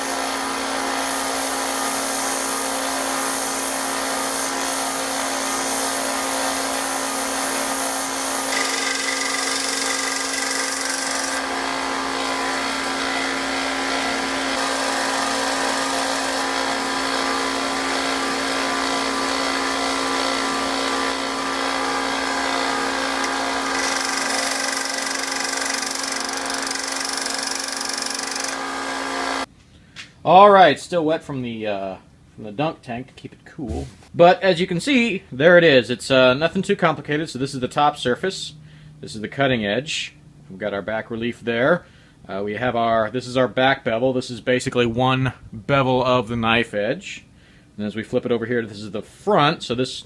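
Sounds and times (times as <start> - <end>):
belt sander grinding tool bit: 0.0 - 29.5
shop vacuum running: 0.0 - 29.5.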